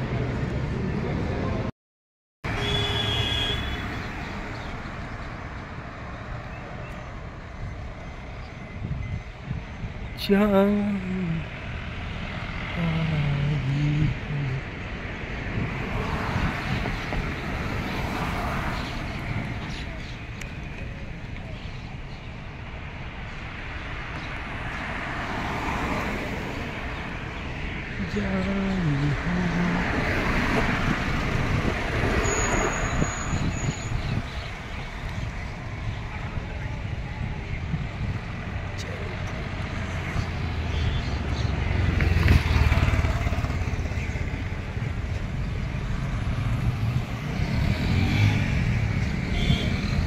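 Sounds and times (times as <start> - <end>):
road traffic: 0.0 - 1.7, 2.4 - 50.0
vehicle passing: 37.6 - 50.0.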